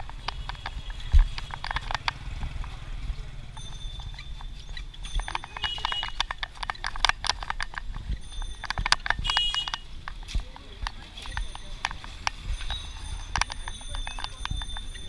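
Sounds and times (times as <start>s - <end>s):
rickshaw rumbling over rough street: 0.0s - 15.0s
sharp clicks and rattles: 0.0s - 15.0s
high ringing tone: 3.5s - 6.4s, 8.1s - 9.9s, 11.3s - 15.0s.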